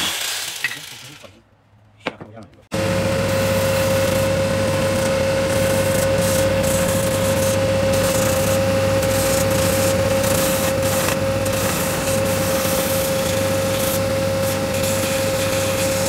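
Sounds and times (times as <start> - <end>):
belt sander whining: 2.7 - 16.0
wood sanding on belt: 3.3 - 16.0.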